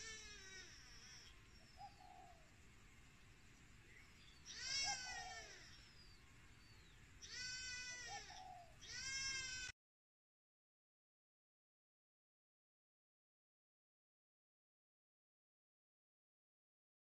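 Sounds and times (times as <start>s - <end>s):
kittens mewing: 4.5s - 5.8s, 7.3s - 9.7s.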